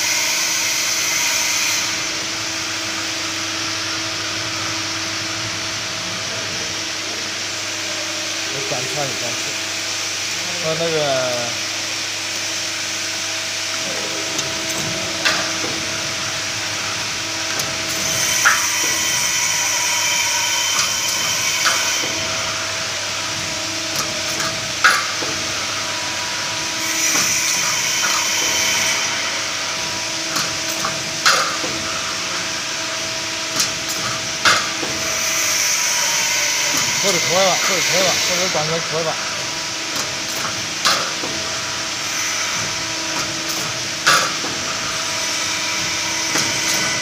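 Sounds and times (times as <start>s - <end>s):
hydraulic power unit humming: 0.0s - 47.0s.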